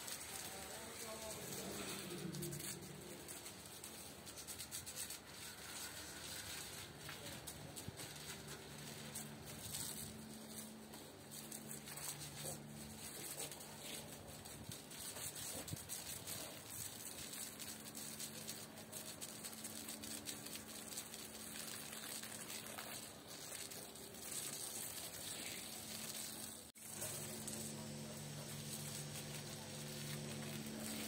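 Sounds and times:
pressure washer spraying water: 0:00.0 - 0:31.0
low steady hum: 0:26.8 - 0:31.0.

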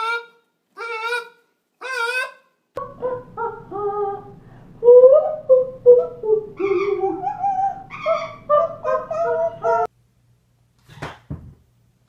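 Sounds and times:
parrot singing: 0:00.0 - 0:09.9
woman singing: 0:02.8 - 0:09.9.

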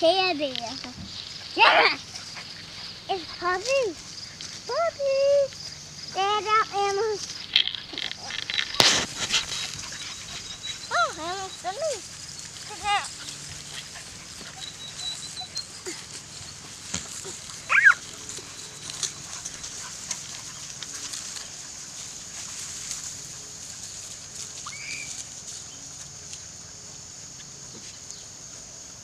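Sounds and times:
puppies playing: 0:00.0 - 0:28.6
puppy yelping: 0:07.8 - 0:19.9
puppy yipping: 0:08.2 - 0:13.3, 0:14.4 - 0:16.6, 0:17.2 - 0:19.3.

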